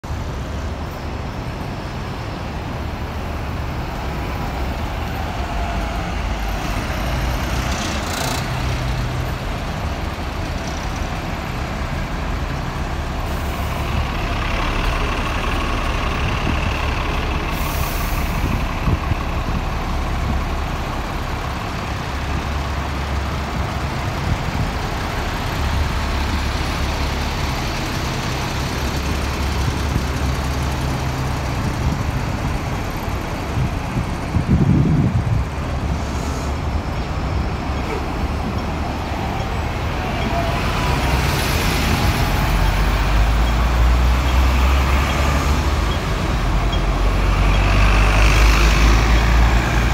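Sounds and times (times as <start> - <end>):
diesel bus engine rumble: 0.0 - 49.9
air brake hisses: 36.0 - 36.6.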